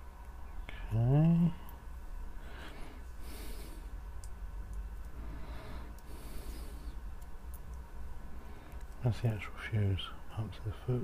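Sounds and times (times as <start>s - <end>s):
low steady hum: 0.0s - 11.0s
person breathing out through nose: 5.2s - 7.0s.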